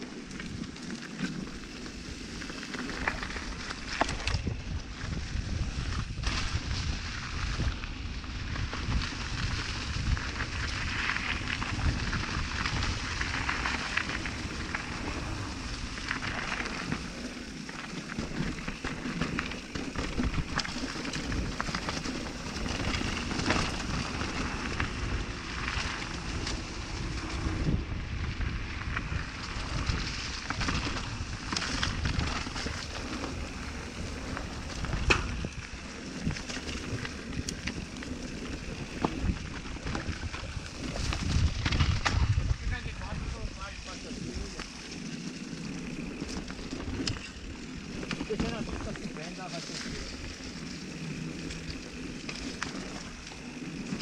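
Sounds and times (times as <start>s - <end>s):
bike tyres crackling over dirt: 0.0s - 54.0s
bike knocks and rattles: 29.0s - 42.7s.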